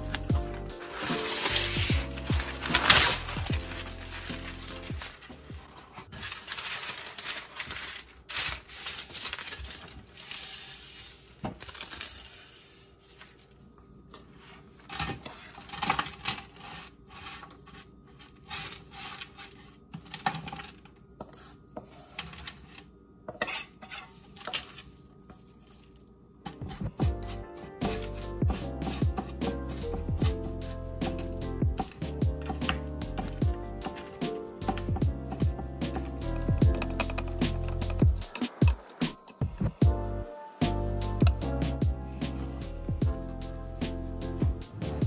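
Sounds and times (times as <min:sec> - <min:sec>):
parchment paper rustling: 0:00.0 - 0:22.9, 0:26.6 - 0:35.4, 0:42.1 - 0:43.4
metal spoon scraping bowl: 0:23.3 - 0:25.9.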